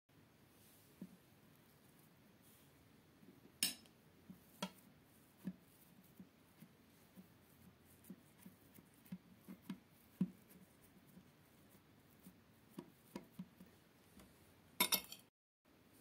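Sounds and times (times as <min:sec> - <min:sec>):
fingertips tapping mashed potato: 0:04.2 - 0:14.3.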